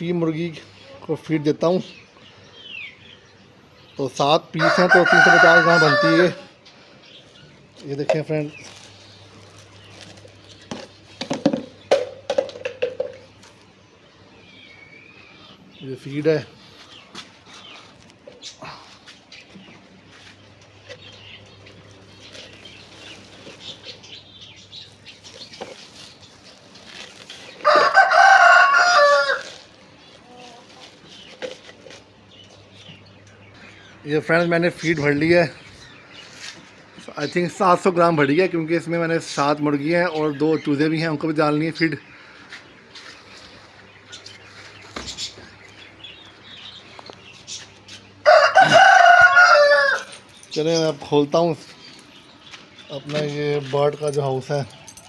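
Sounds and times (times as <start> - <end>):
rooster crowing: 4.6 - 6.5, 27.6 - 29.6, 48.2 - 50.3.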